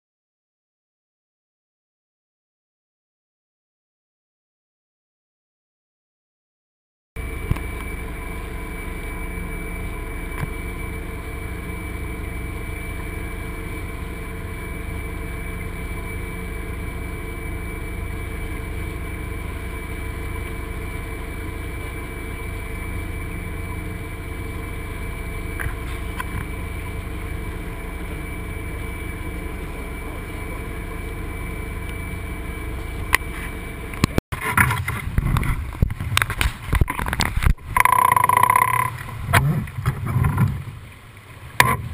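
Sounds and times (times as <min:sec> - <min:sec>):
faint steady whine: 0:07.2 - 0:41.9
water rushing past hull: 0:08.2 - 0:41.9
gusty wind buffeting: 0:23.4 - 0:37.8.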